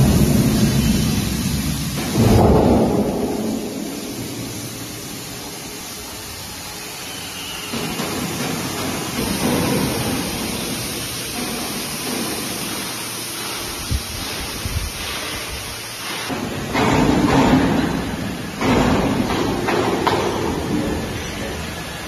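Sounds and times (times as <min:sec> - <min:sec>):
rushing air: 0:00.0 - 0:07.4, 0:09.2 - 0:16.4.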